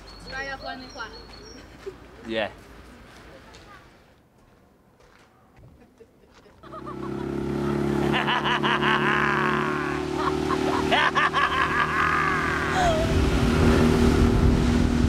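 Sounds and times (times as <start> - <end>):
people laughing: 1.5 - 2.3, 5.8 - 13.1
outboard motor running: 6.6 - 15.0.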